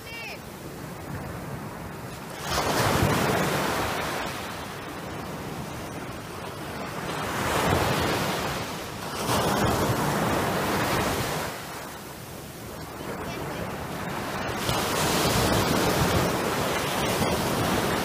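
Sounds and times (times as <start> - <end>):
surf washing up sandy beach: 0.0 - 18.0.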